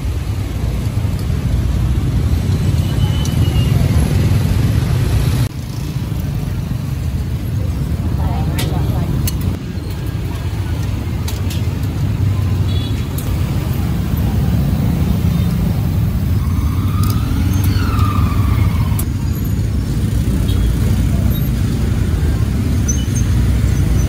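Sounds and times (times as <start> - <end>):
motorbike and car engines passing: 0.0 - 24.0.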